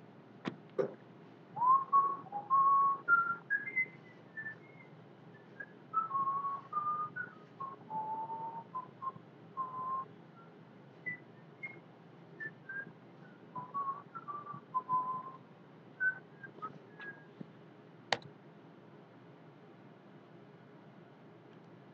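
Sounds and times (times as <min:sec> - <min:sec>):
person whistling: 0:01.6 - 0:11.8, 0:12.4 - 0:12.9, 0:13.6 - 0:15.4, 0:16.0 - 0:17.4
sharp click: 0:18.1 - 0:18.3.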